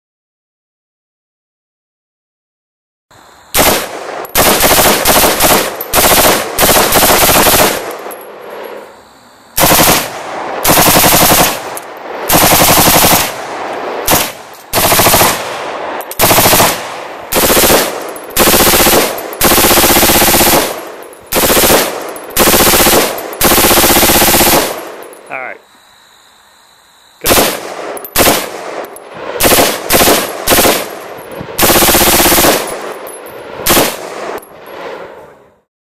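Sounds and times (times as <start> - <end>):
automatic rifle fire bursts: 3.6 - 8.0, 9.6 - 25.0, 27.2 - 31.0, 31.6 - 32.9, 33.6 - 34.4.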